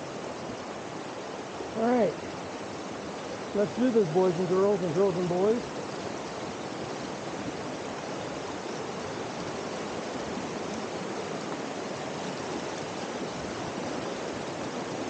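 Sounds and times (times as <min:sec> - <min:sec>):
creek rushing over rocks: 0:00.0 - 0:15.0.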